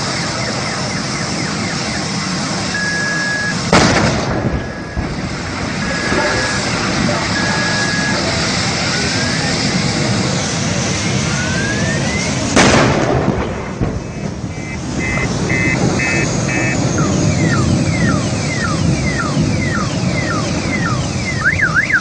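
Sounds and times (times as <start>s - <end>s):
steady loud noise: 0.0s - 22.0s
car alarm beeping and chirping: 0.1s - 3.7s, 4.6s - 5.2s, 5.8s - 6.7s, 7.3s - 8.3s, 14.0s - 22.0s
sharp explosion: 3.5s - 21.4s.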